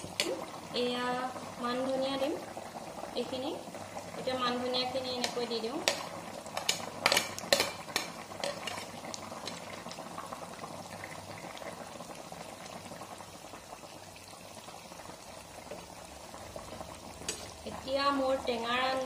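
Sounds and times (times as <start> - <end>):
curry bubbling at a simmer: 0.0 - 19.0
metal spoon scraping pan: 6.6 - 9.6.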